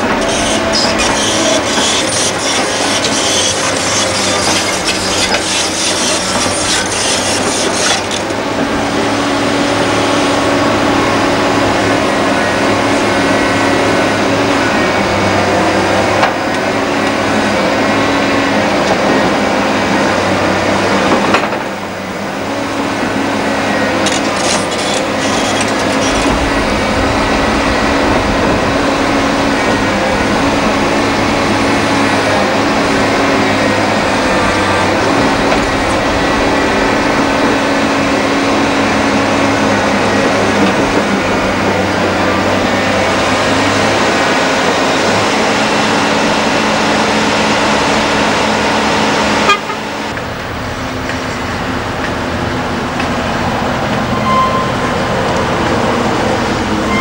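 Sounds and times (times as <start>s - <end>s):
bucket scraping stony soil: 0.0s - 8.4s, 23.9s - 39.6s
excavator engine humming: 0.0s - 57.0s
deep rumble: 25.0s - 44.7s.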